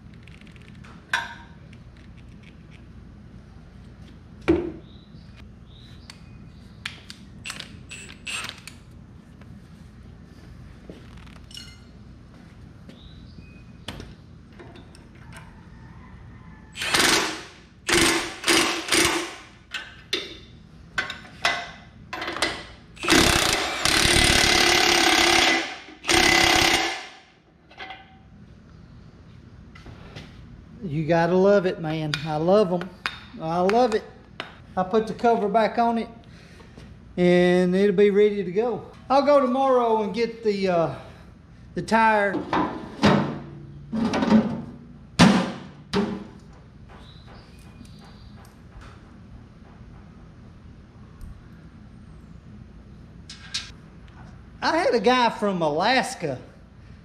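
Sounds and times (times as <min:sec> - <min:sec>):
impact wrench hammering on bolt: 0:16.8 - 0:19.5, 0:23.0 - 0:27.2.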